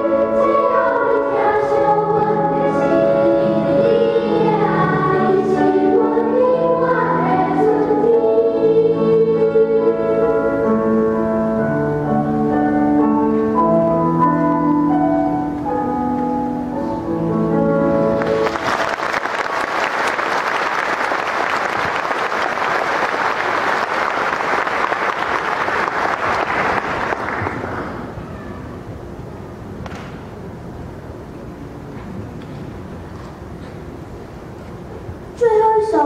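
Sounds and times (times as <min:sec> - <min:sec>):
children's choir singing: 0:00.0 - 0:11.9
piano accompaniment: 0:00.0 - 0:29.7
audience applauding: 0:18.2 - 0:28.1.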